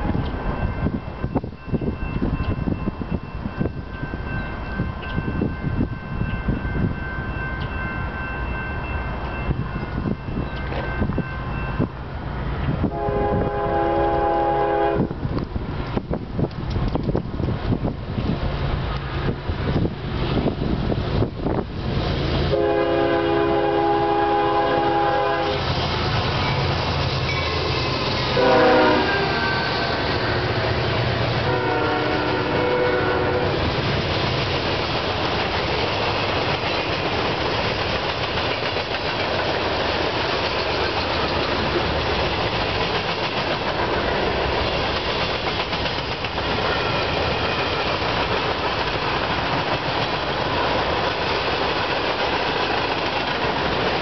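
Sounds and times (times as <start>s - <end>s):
train air horn blasts: 12.9s - 15.1s, 22.5s - 25.7s, 28.1s - 30.6s, 31.4s - 33.6s
diesel engines humming: 17.8s - 36.5s
train wheels clacking on rails: 18.8s - 54.0s.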